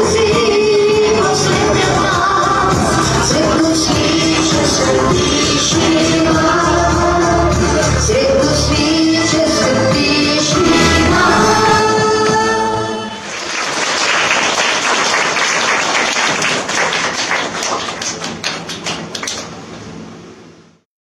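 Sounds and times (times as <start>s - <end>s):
backing music: 10.6s - 12.4s
hand claps: 14.6s - 19.5s.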